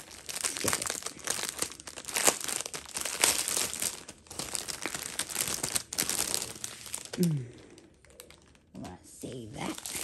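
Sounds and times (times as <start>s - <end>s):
plastic bags crinkling: 0.0s - 10.0s.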